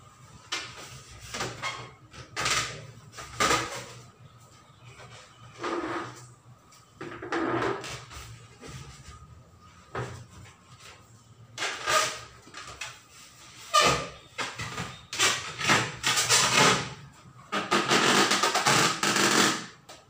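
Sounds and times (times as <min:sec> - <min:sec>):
balloon squeaking and rubbing: 0:01.2 - 0:04.0, 0:11.6 - 0:12.3, 0:13.5 - 0:16.9, 0:17.5 - 0:19.7.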